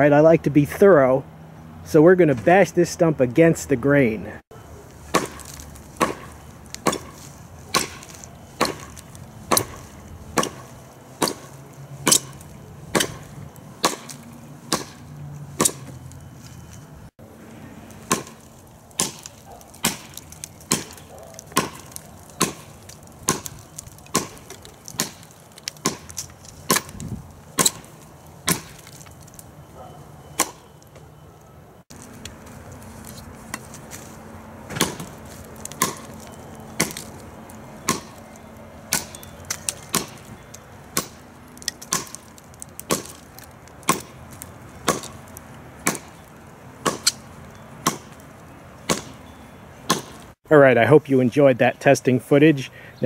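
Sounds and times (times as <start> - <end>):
blade chopping into wood: 5.1 - 16.0, 18.0 - 29.0, 30.4 - 30.6, 34.7 - 37.2, 37.8 - 38.3, 38.9 - 40.3, 40.9 - 48.2, 48.8 - 49.2, 49.9 - 50.3.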